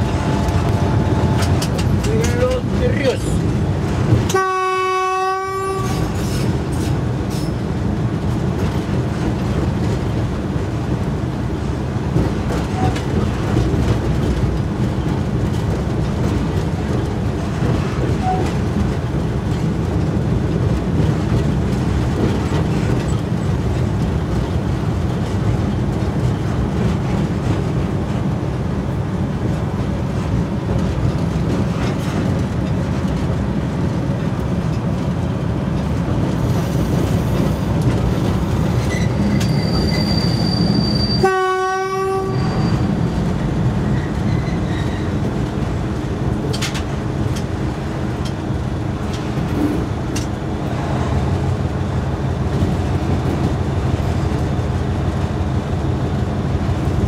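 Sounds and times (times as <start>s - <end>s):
diesel locomotive engine rumble: 0.0s - 57.0s
train wheels on track: 0.0s - 57.0s
locomotive horn blast: 4.3s - 6.2s, 41.0s - 42.9s.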